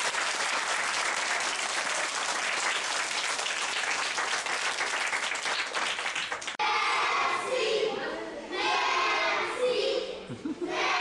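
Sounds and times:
audience of children clapping: 0.0 - 6.6.

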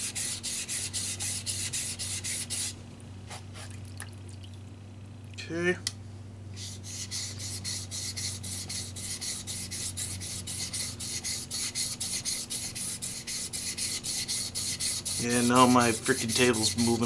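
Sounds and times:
knife scraping on wet whetstone: 6.6 - 17.0.

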